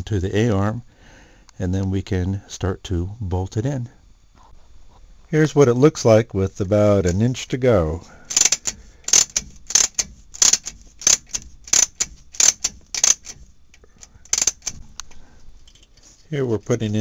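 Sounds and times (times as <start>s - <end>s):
wrench clicking on bolt: 8.3s - 15.1s.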